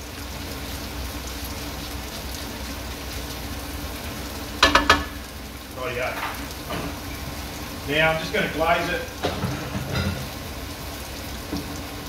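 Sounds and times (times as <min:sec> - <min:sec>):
prawns sizzling in a frying pan: 0:00.0 - 0:12.0
sharp knocks: 0:04.6 - 0:05.2.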